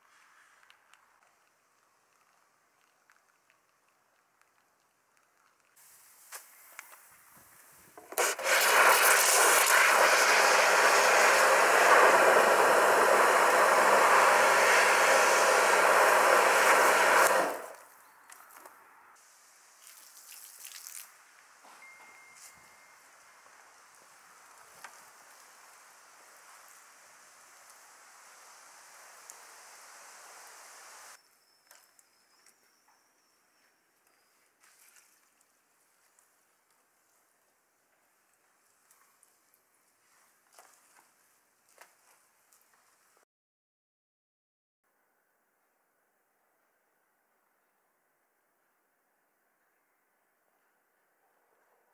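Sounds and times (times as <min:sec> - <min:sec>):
pressure washer spraying water: 0:08.1 - 0:17.8
pump motor humming: 0:08.1 - 0:17.8
faint high whine: 0:21.6 - 0:24.8.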